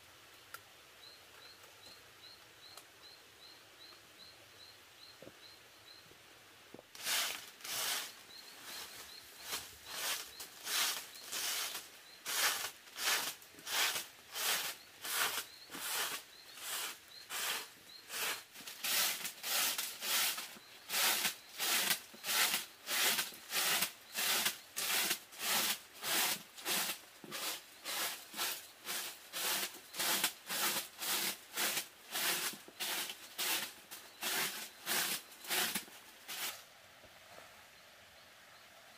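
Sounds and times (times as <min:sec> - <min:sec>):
broom sweeping earth floor: 0:06.8 - 0:36.7.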